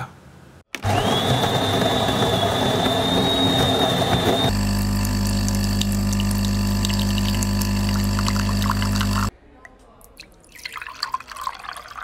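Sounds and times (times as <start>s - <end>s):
espresso grinder whirring: 0.8s - 9.3s
espresso machine pump humming: 0.8s - 9.3s.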